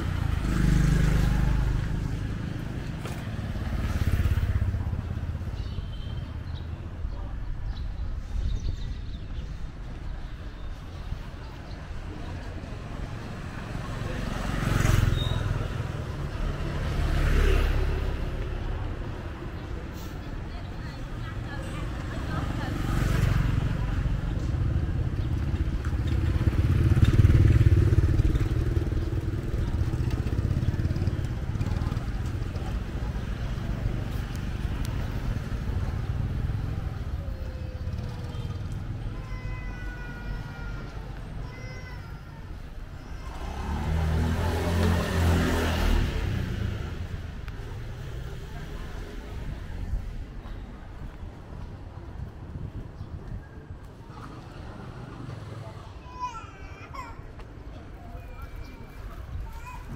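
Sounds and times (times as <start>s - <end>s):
traffic noise: 0.0s - 59.9s
small motorbike engine passing: 13.5s - 18.9s, 22.5s - 39.9s, 42.8s - 49.0s.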